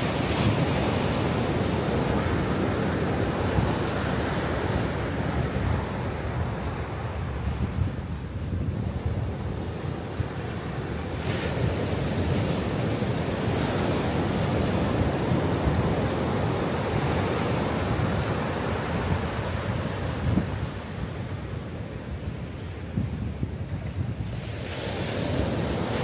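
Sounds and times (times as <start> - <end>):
ocean surf breaking on beach: 0.0 - 26.0
wind rumbling on microphone: 0.0 - 26.0.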